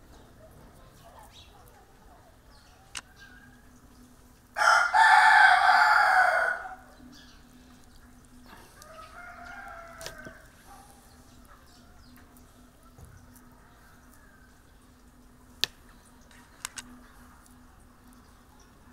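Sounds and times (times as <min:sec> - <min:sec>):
rooster crowing: 0:04.6 - 0:06.9, 0:08.8 - 0:10.6.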